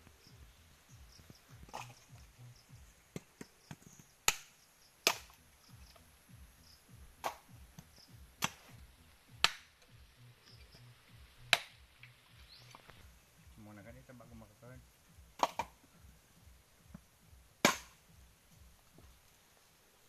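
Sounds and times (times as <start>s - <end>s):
machete striking coconuts: 1.7s - 2.2s, 3.1s - 6.0s, 7.1s - 8.8s, 9.4s - 9.8s, 11.5s - 11.8s, 15.3s - 15.8s, 17.6s - 18.1s.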